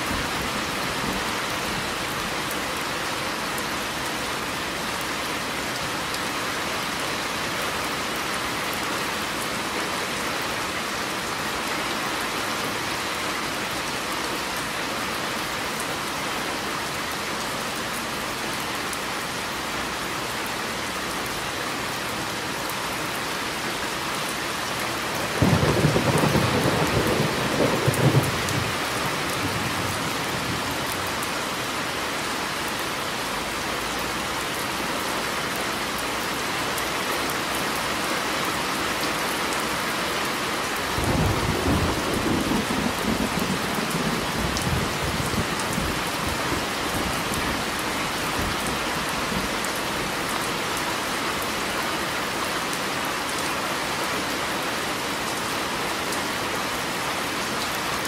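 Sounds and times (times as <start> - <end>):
steady rain: 0.0 - 58.0
thunder rumbling: 25.4 - 30.8.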